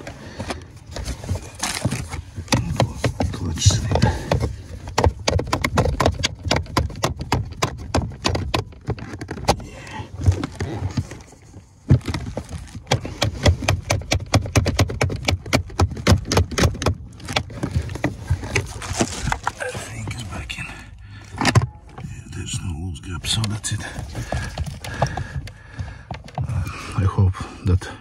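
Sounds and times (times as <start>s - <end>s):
clutch pedal parts clicking: 1.7s - 11.1s, 11.9s - 19.6s.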